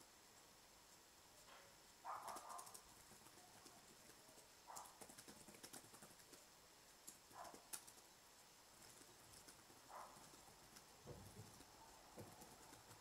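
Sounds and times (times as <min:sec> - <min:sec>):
laptop keyboard typing: 0:02.1 - 0:06.4, 0:07.0 - 0:08.0, 0:08.8 - 0:13.0.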